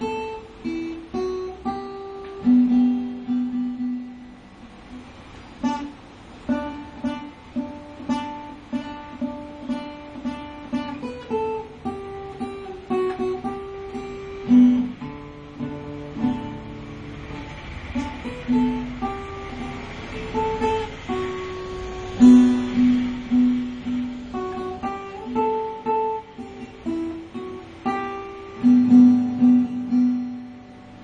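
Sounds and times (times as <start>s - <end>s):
acoustic guitar plucked notes: 0.0s - 31.0s.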